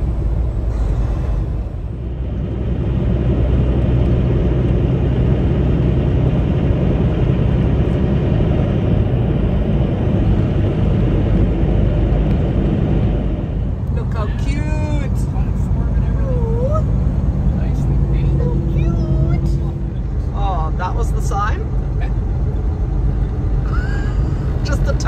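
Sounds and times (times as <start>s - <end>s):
road rumble: 0.0s - 25.0s
truck engine drone: 0.0s - 25.0s.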